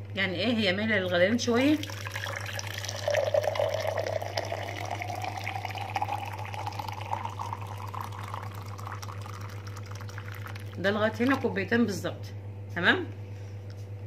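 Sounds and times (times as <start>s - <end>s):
water pouring into glass mug: 1.7s - 11.4s.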